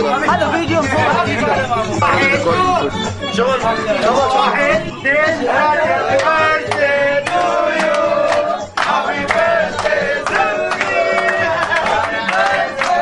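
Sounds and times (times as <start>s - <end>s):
men singing together: 0.0s - 13.0s
hand clapping in time: 6.1s - 13.0s.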